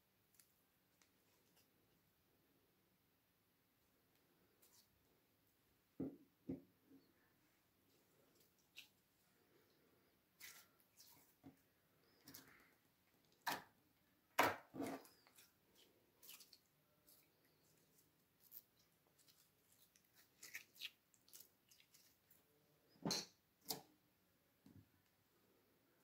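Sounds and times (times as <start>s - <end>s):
slime squelching and crackling: 14.9s - 22.6s.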